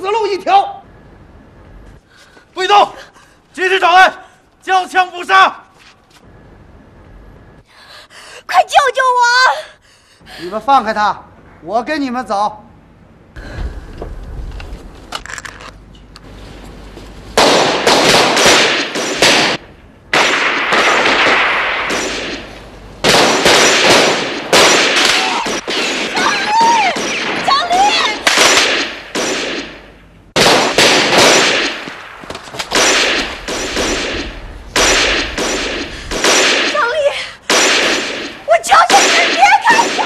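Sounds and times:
rapid pistol gunfire: 17.4s - 27.4s, 28.2s - 29.8s, 30.4s - 36.9s, 37.5s - 40.0s.

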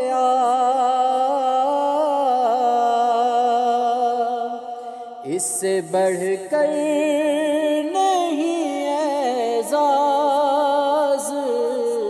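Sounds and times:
man singing devotional song: 0.0s - 12.0s.

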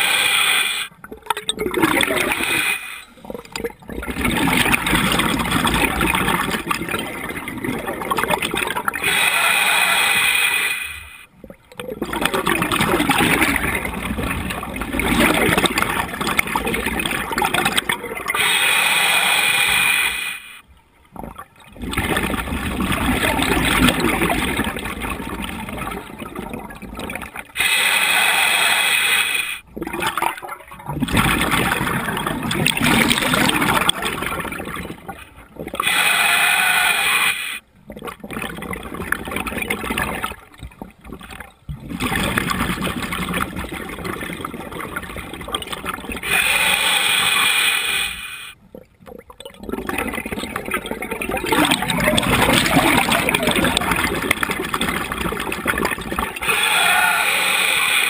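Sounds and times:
exhaled air bubbling: 0.0s - 58.0s
regulator inhale hiss: 18.4s - 20.6s, 27.6s - 29.6s, 46.3s - 48.6s.

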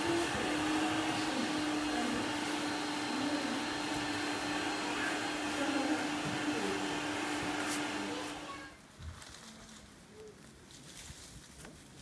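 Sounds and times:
vacuum cleaner running: 0.0s - 8.8s.

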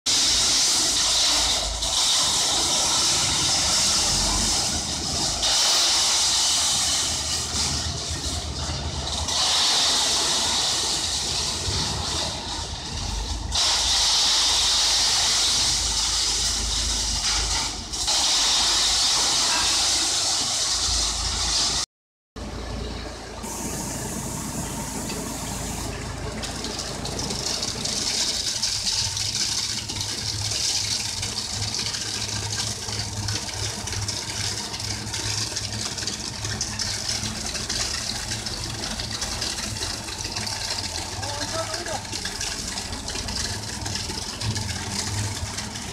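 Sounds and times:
loud hiss: 0.1s - 7.8s, 9.2s - 12.5s, 13.5s - 21.8s
concrete mixer engine running: 0.1s - 21.8s, 22.4s - 45.9s.

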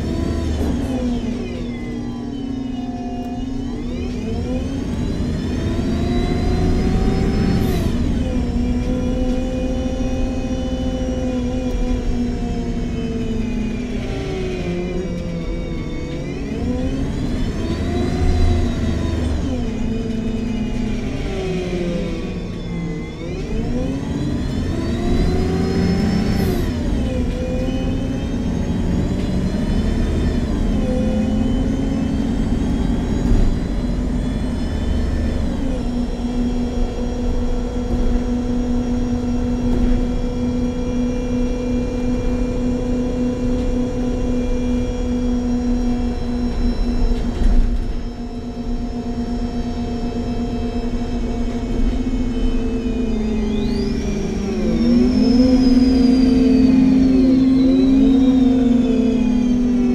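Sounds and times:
bus engine and transmission whine: 0.0s - 59.9s.

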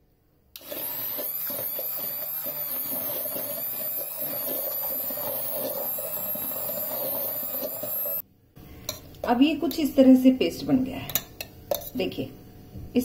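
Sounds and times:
hand blender motor whining: 0.6s - 8.2s.

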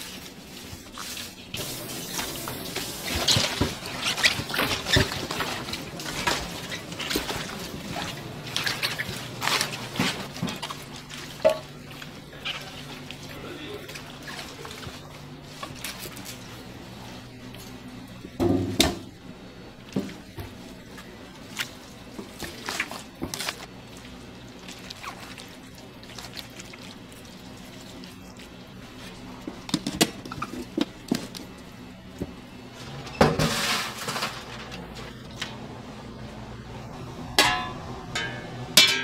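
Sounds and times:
steady low hum: 0.0s - 39.0s
kitchen knocks and clinks: 37.4s - 39.0s.

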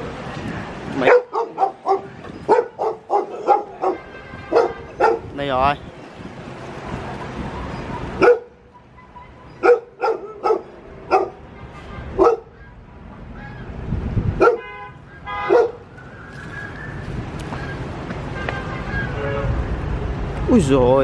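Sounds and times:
dog barking: 1.0s - 5.3s, 8.2s - 8.6s, 9.6s - 11.4s, 12.2s - 12.6s, 14.4s - 14.8s, 15.4s - 15.8s.

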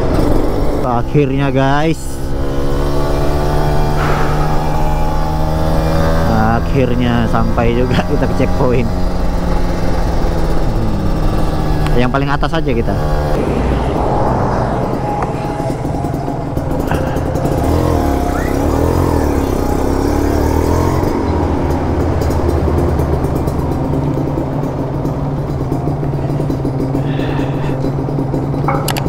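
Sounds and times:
motorcycle engine idling: 3.7s - 12.2s, 16.6s - 29.0s
music playing: 13.1s - 20.1s.

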